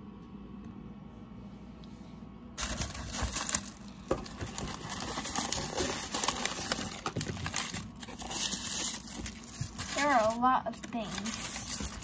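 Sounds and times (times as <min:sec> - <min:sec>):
tissue paper crinkling: 0:02.6 - 0:12.0.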